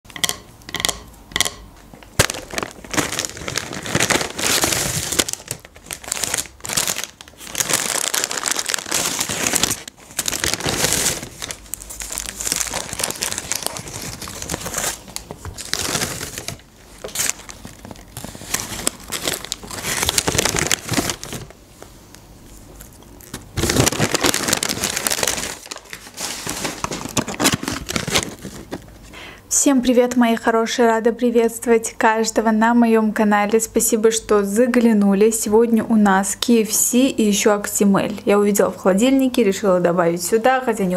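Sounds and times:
paper bag rustling: 0:02.2 - 0:21.6, 0:23.2 - 0:28.9.

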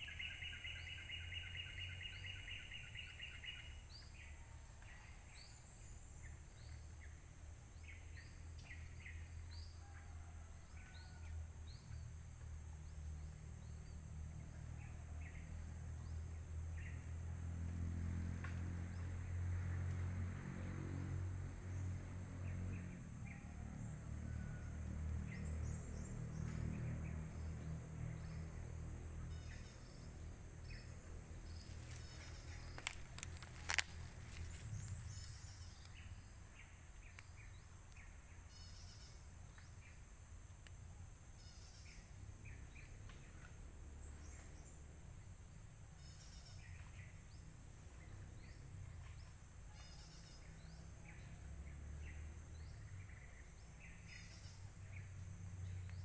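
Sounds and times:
bird chirps: 0:00.0 - 0:05.6.

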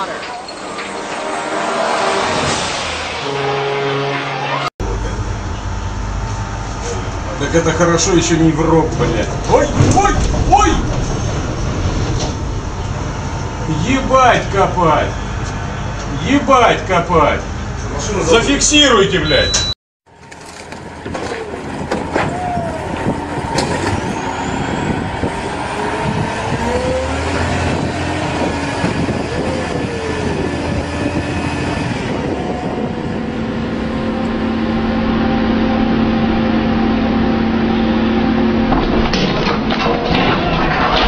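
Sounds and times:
heavy machinery rumble: 0:00.0 - 0:18.5, 0:20.1 - 0:41.0
steady hum: 0:04.8 - 0:19.2, 0:31.8 - 0:40.3
wavering squeals: 0:21.4 - 0:38.7.

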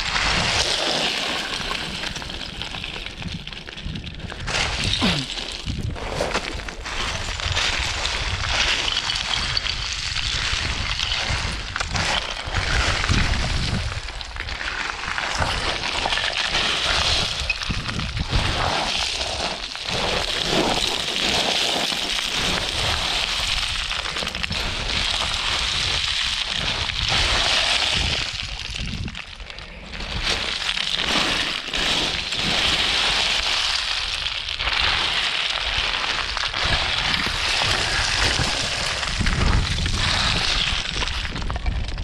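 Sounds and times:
footsteps crunching on scree: 0:00.0 - 0:42.0
stones clattering: 0:00.0 - 0:42.0
wind rumbling on microphone: 0:00.0 - 0:42.0.

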